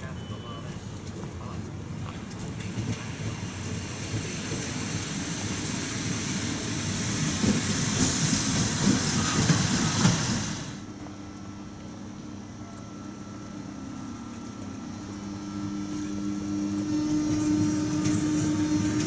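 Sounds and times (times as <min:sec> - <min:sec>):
train wheels clattering: 0:02.1 - 0:10.8, 0:16.8 - 0:19.0.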